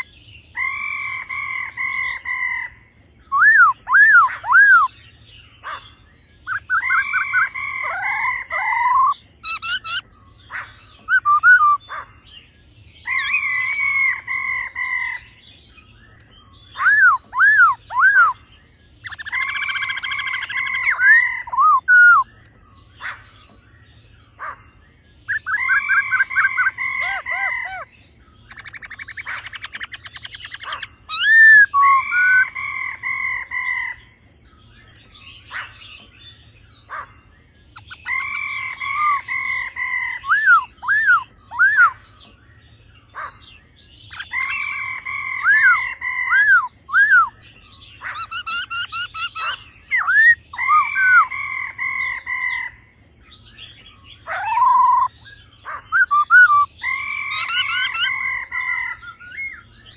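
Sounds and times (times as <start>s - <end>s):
bird chattering: 0.0s - 59.9s
birds whistled song: 0.0s - 59.9s
bird rattling call: 48.0s - 52.8s.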